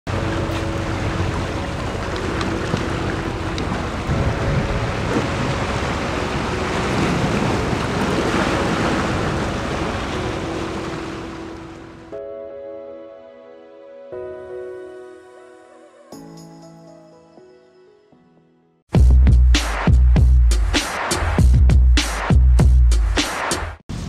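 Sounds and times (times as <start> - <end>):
surf breaking over rocks: 0.1 - 12.0
wind buffeting microphone: 0.2 - 11.4.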